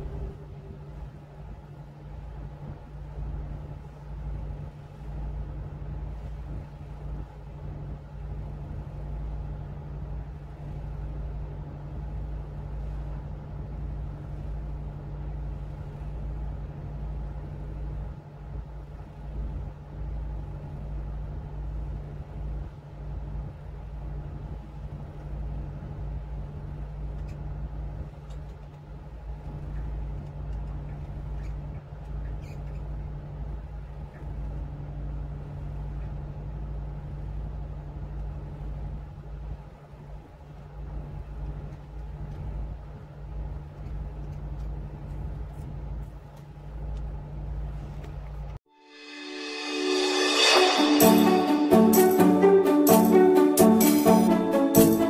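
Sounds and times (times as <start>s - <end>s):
boat diesel engine droning: 0.0s - 30.2s.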